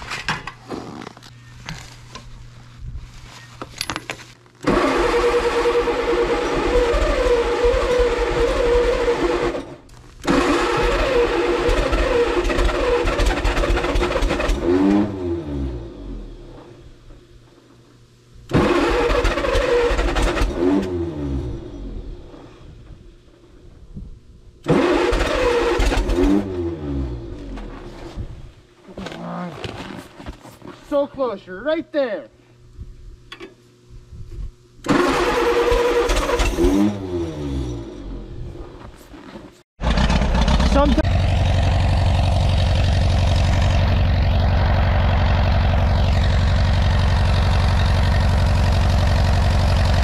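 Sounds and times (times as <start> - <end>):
tractor engine cranking: 4.6 - 14.8, 18.5 - 21.0, 24.6 - 26.5, 34.8 - 38.0, 39.8 - 50.0
starter winding down whine: 4.6 - 17.2, 18.5 - 23.1, 34.8 - 38.8, 39.8 - 50.0.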